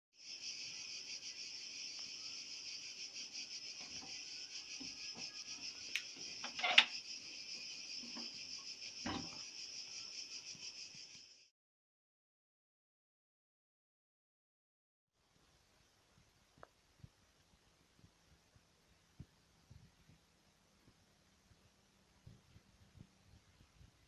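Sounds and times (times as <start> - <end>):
insects buzzing: 0.2 - 11.5.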